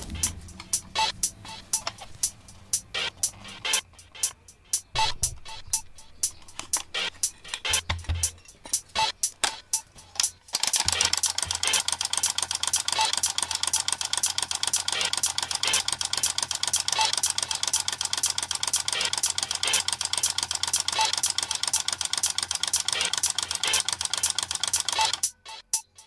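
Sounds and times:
flip clock cards clattering: 0:06.2 - 0:25.3
clock motor hum: 0:10.2 - 0:25.3.

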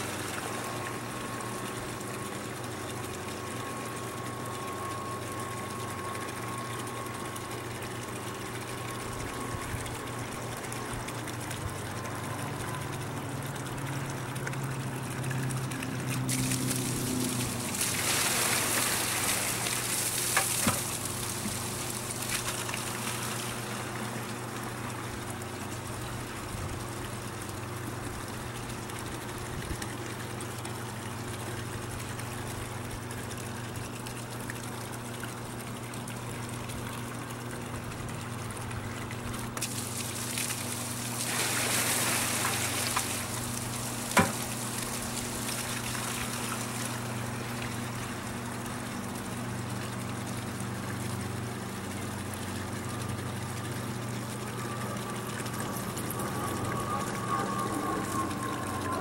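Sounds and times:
pump humming: 0:00.0 - 0:59.0
water pouring into plastic bucket: 0:15.2 - 0:23.9, 0:37.8 - 0:47.9.

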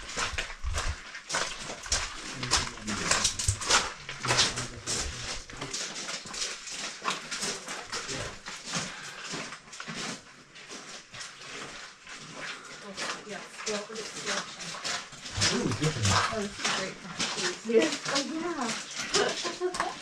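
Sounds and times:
footsteps crunching on gravel: 0:00.0 - 0:12.4.

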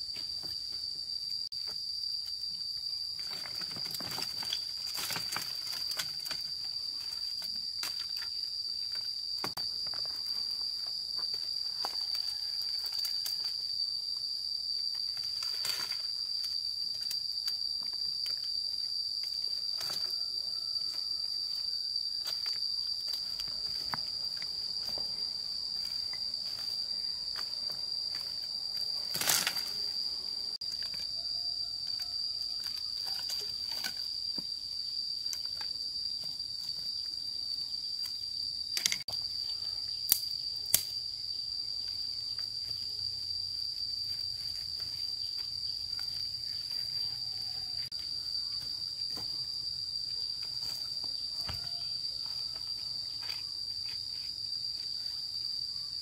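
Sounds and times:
high-pitched insect drone: 0:00.0 - 0:56.0.

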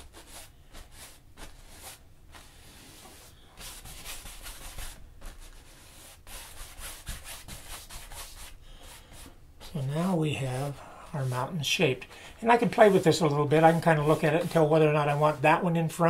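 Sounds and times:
brush rubbing on canvas: 0:00.0 - 0:15.6.

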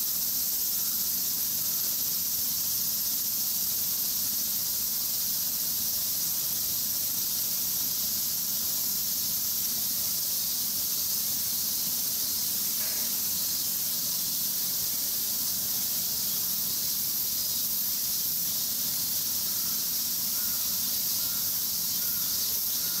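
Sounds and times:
high-pitched insect chorus: 0:00.0 - 0:23.0.

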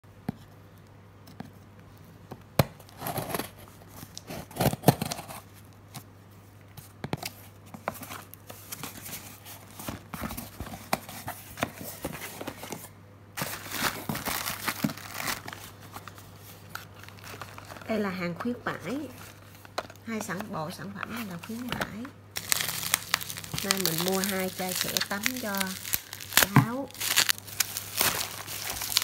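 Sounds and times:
plastic wrapping crinkling: 0:07.8 - 0:29.0.

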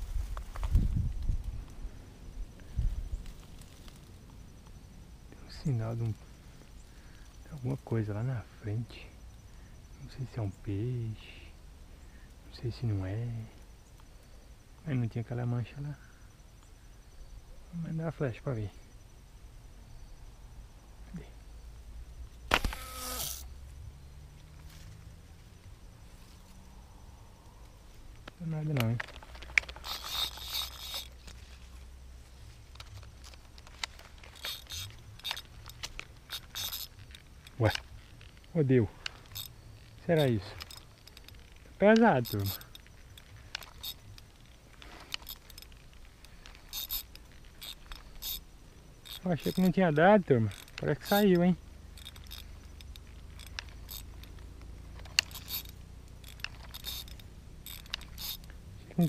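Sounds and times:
fishing reel whirring: 0:22.5 - 0:23.5, 0:29.3 - 0:31.4, 0:32.8 - 0:38.4, 0:39.0 - 0:41.6, 0:42.2 - 0:49.8, 0:50.4 - 0:59.0
light handling clicks: 0:27.4 - 0:31.4, 0:32.7 - 0:59.0.

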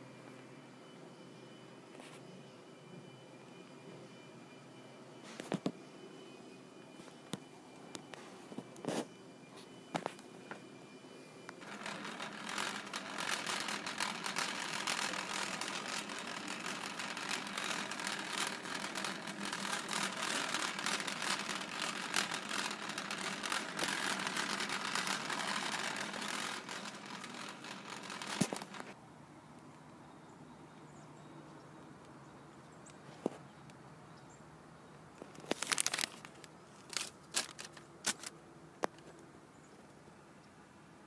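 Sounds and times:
shopping cart rattling: 0:11.6 - 0:29.0, 0:36.9 - 0:38.3.

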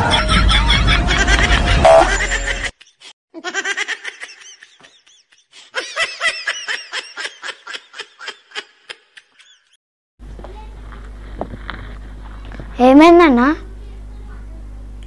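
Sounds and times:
high-pitched cartoon laughter: 0:00.0 - 0:09.8.

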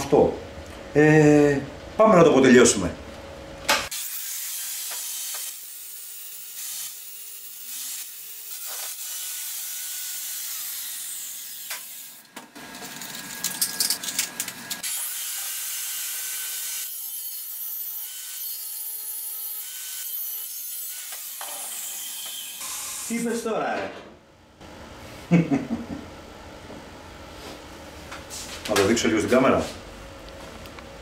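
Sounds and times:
angle grinder grinding metal: 0:03.9 - 0:23.4.

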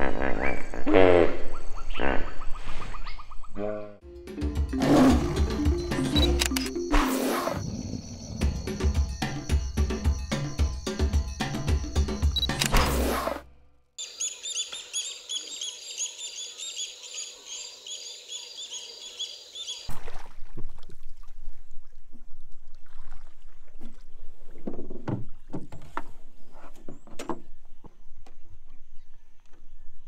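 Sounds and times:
birds calling: 0:04.9 - 0:12.7, 0:14.0 - 0:19.9
paddle strokes and splashes: 0:19.9 - 0:26.8.

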